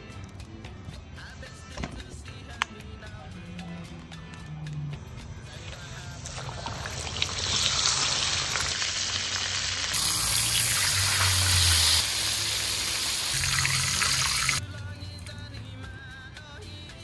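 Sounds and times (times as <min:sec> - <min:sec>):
fish sizzling in hot oil: 0:05.7 - 0:14.6.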